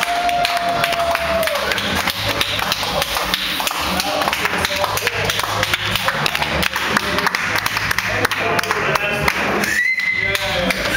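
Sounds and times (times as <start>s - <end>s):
crowd voices: 0.0s - 10.9s
sharp taps or claps: 0.0s - 10.9s.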